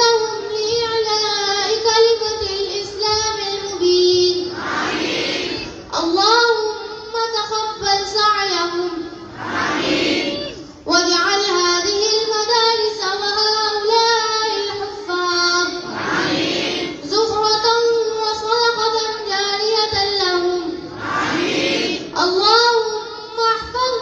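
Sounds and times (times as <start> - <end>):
children chanting a melody: 4.4 - 5.9, 9.2 - 10.7, 15.6 - 17.3, 20.6 - 22.4.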